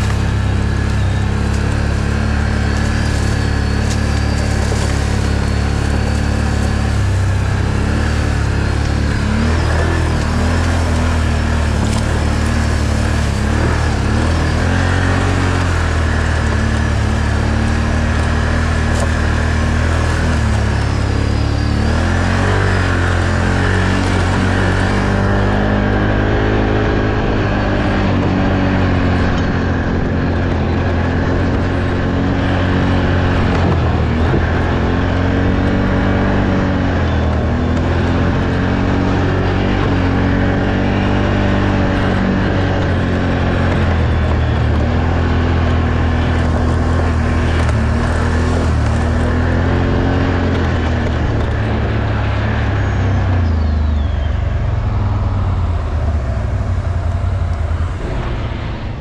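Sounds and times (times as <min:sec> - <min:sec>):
off-road vehicle engine revving: 0:00.0 - 0:59.0.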